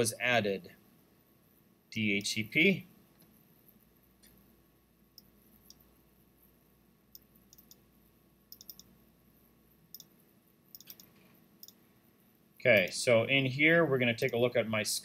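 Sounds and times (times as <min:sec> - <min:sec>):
computer mouse clicks: 0:05.2 - 0:05.9, 0:07.1 - 0:07.8, 0:08.5 - 0:09.0, 0:09.9 - 0:11.8.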